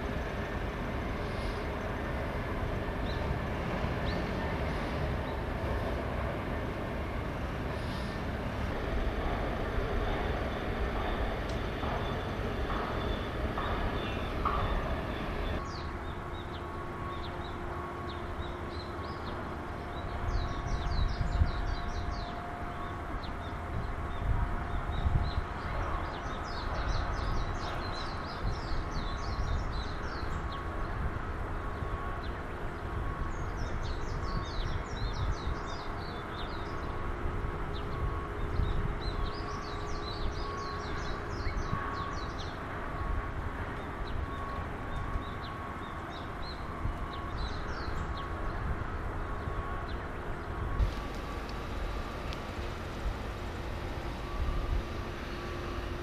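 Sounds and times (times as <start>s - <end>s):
steady low rumble with hum: 0.0s - 31.2s, 46.1s - 56.0s
small birds chirping: 49.9s - 56.0s.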